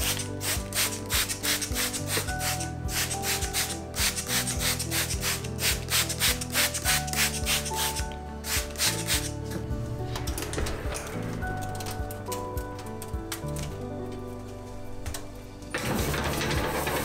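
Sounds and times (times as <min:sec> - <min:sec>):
spray bottle squirting water: 0:00.0 - 0:09.4
background music: 0:00.0 - 0:17.0.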